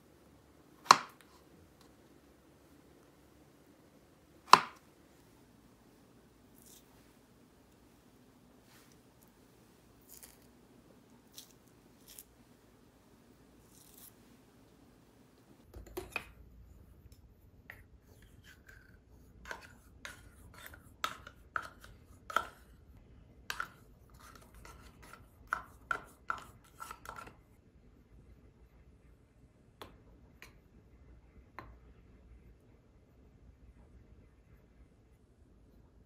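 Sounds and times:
wooden spoon knocking and scraping: 17.7s - 22.7s, 23.5s - 27.4s.

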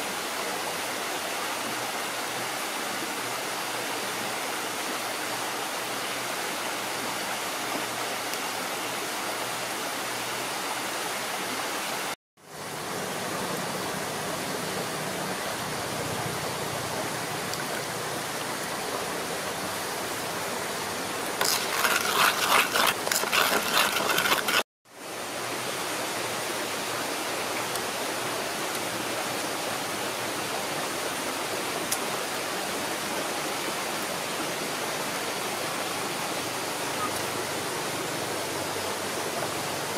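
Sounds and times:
stream rushing: 0.0s - 39.9s
rapid loud clicking and scraping: 21.4s - 24.7s.

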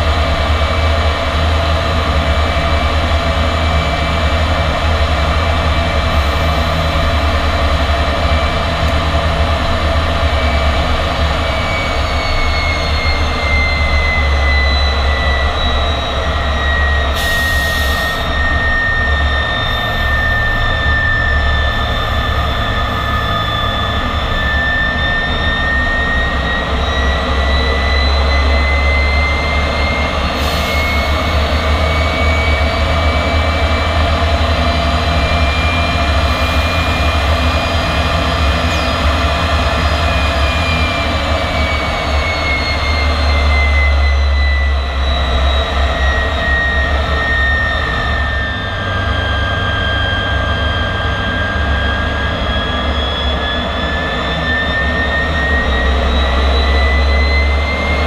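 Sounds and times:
deep engine rumble: 0.0s - 58.0s
jet engine whine: 0.0s - 58.0s.

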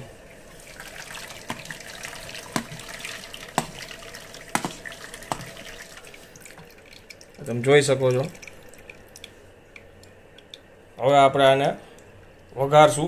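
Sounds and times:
liquid dripping through strainer: 0.6s - 10.8s.

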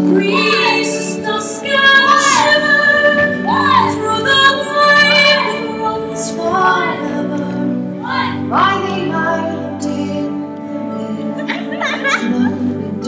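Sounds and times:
sustained instrumental backing: 0.0s - 13.0s
woman singing: 0.0s - 13.0s.

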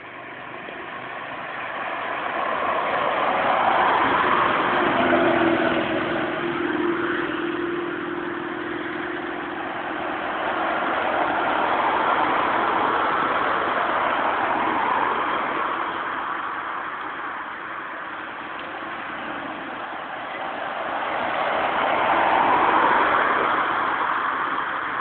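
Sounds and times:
car driving by: 0.0s - 25.0s
motorcycle riding away: 3.2s - 12.1s.

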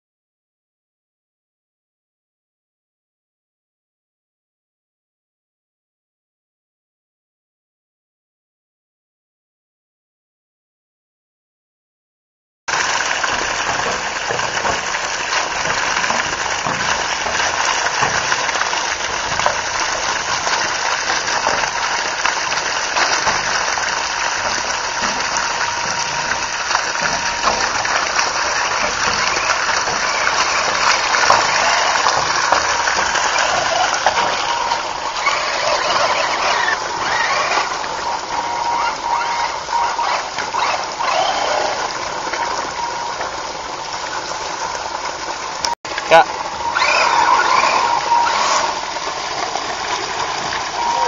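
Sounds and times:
stream water gushing and splashing: 12.7s - 51.0s.

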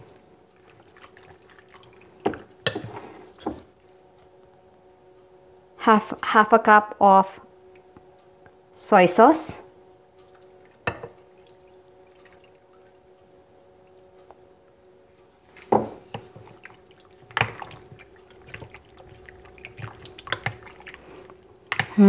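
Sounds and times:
wet squelches of stirred meat: 0.0s - 3.8s, 10.2s - 13.2s, 15.4s - 22.0s
faint steady hum: 0.0s - 22.0s
sauce pouring: 15.8s - 21.8s.

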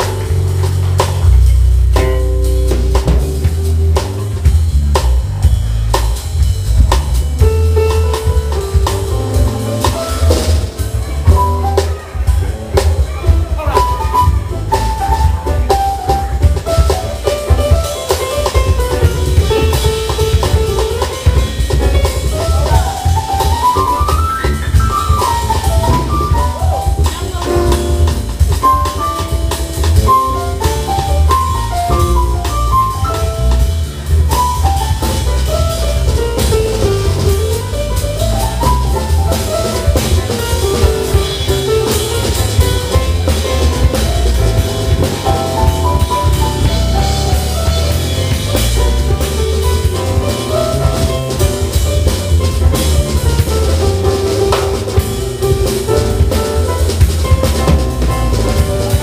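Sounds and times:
drum kit: 0.0s - 59.0s
electric bass: 0.0s - 59.0s
keyboard: 0.0s - 59.0s
melodic lead line: 13.4s - 59.0s.

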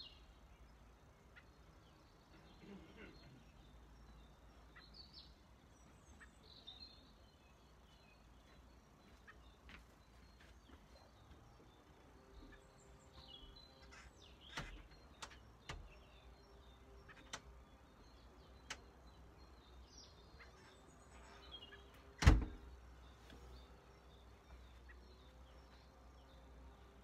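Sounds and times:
small birds chirping faintly: 0.0s - 27.0s
sharp clicks and knocks: 14.5s - 16.0s, 17.1s - 17.5s
loud thump: 22.2s - 22.6s.

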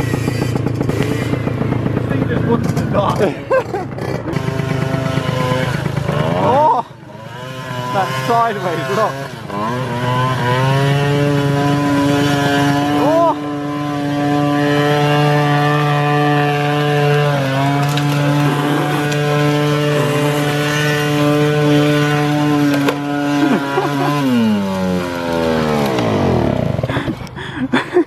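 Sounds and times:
moped engine revving high: 0.0s - 27.8s.

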